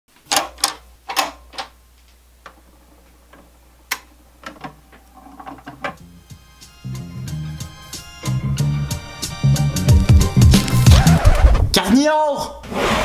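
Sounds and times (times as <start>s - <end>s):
vinyl crackle and pops: 0.1s - 6.0s, 9.8s - 11.8s
turntable motor humming: 1.8s - 11.7s.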